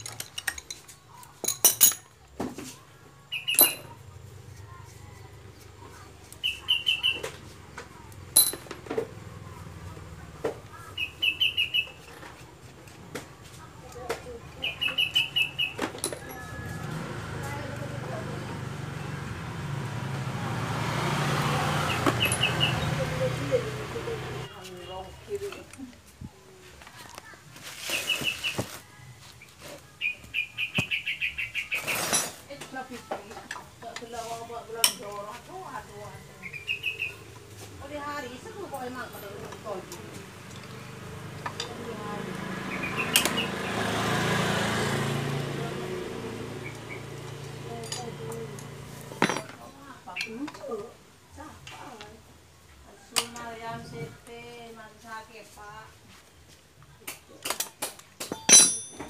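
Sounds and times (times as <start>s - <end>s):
metal engine parts clinking: 0.0s - 2.4s, 3.4s - 4.2s, 8.3s - 8.9s, 15.9s - 16.5s, 47.7s - 49.6s, 57.4s - 59.0s
bird chirping: 3.2s - 4.1s, 5.0s - 7.4s, 10.8s - 12.2s, 14.3s - 16.6s, 21.7s - 25.7s, 29.4s - 32.1s, 36.1s - 37.4s, 42.5s - 43.8s.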